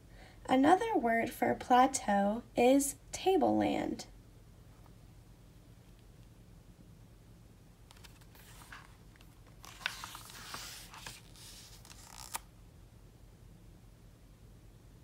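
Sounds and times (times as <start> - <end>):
paper rustling: 7.9 - 12.4.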